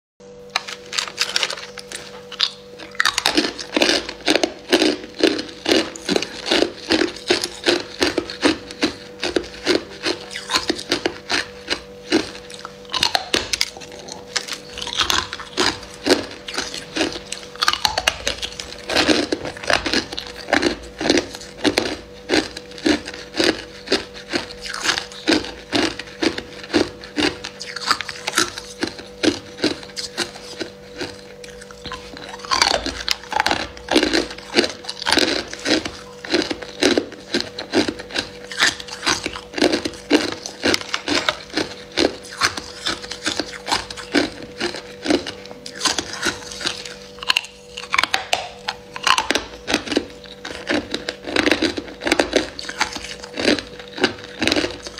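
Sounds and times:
faint hum: 0.2 - 54.9
ice cubes crunched by teeth: 0.6 - 54.9.

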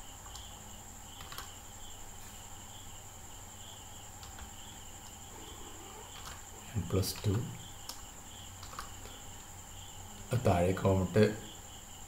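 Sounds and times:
crickets chirping: 0.0 - 12.0
keyboard key clicks: 8.6 - 9.0.

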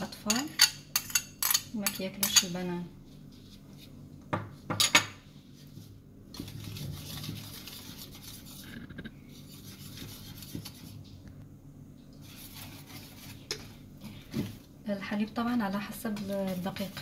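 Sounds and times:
whisk scraping metal bowl: 6.5 - 11.0, 12.2 - 13.8.

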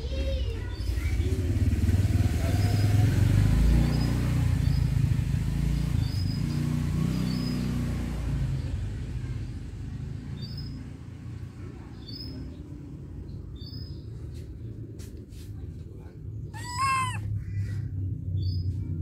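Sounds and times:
motor engine rumbling: 12.5 - 19.0.

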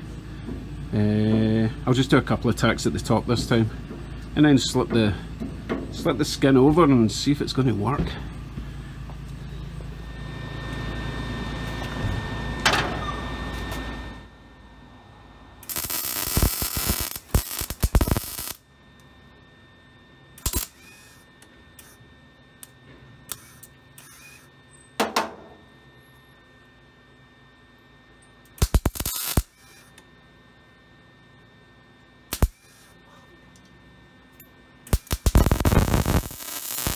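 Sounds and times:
welding arc crackling: 15.6 - 18.7, 20.4 - 21.2, 28.5 - 30.0, 32.3 - 33.0, 34.9 - 36.9.

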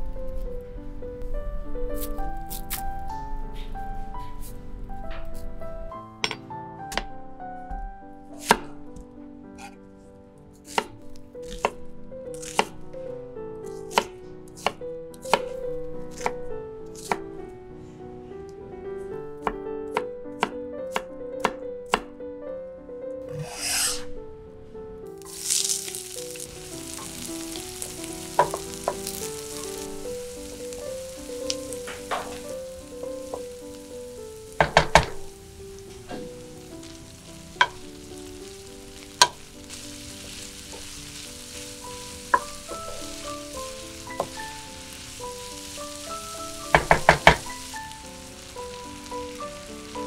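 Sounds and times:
light background music: 0.0 - 50.0
onion sizzling in hot oil: 1.2 - 5.8, 10.6 - 12.8, 25.2 - 50.0
wooden spoon stirring: 25.2 - 50.0.

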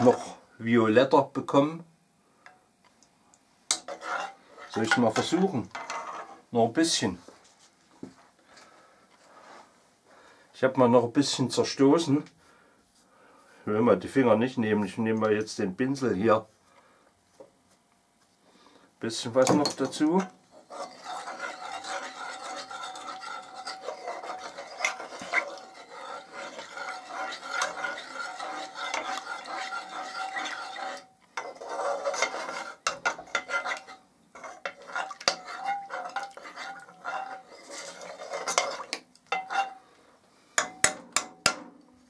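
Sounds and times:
utensil scraping vessel squeaking: 20.5 - 39.8.

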